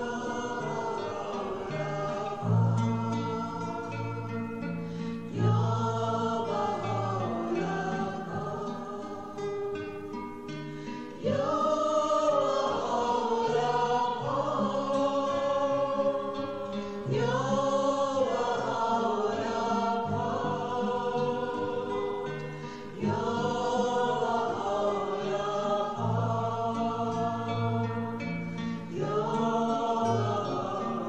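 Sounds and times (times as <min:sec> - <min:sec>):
choir singing: 0:00.0 - 0:31.0.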